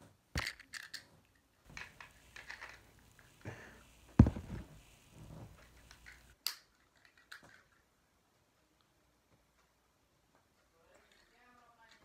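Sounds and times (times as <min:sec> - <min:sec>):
plastic parts clicking and rustling: 0:00.4 - 0:03.3, 0:05.6 - 0:07.9
sharp knock: 0:04.2 - 0:04.6.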